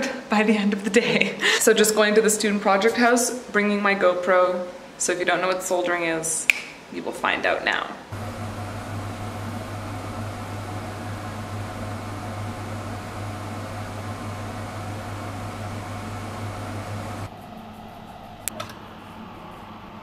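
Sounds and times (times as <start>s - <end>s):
extractor fan motor hum: 8.1s - 17.3s.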